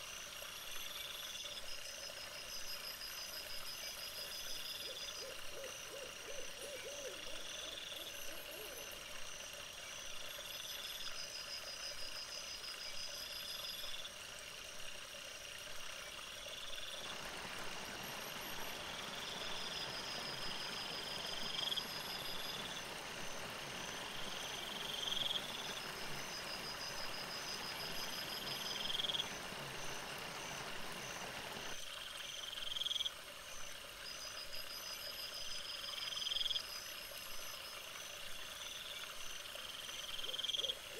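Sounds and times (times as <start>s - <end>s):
frogs trilling and chirping: 0.0s - 14.2s, 14.9s - 40.9s
steady hiss: 16.6s - 32.8s.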